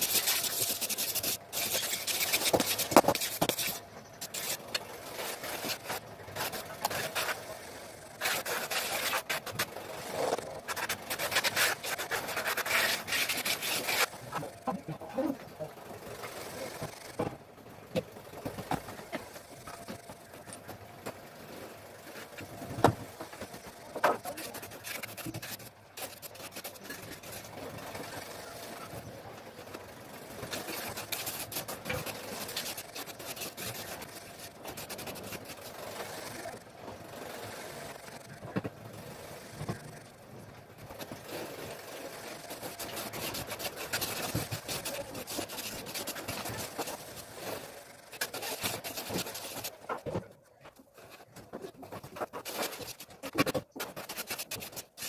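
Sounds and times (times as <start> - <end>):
trowel scraping wet cement: 0.0 - 7.5, 8.2 - 14.5, 24.0 - 28.8, 30.4 - 36.6, 41.0 - 50.0, 51.0 - 55.0.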